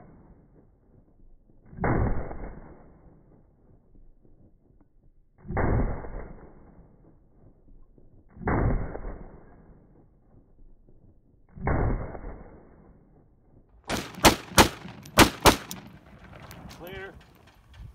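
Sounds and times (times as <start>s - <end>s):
pistol gunshots: 13.9s - 17.4s.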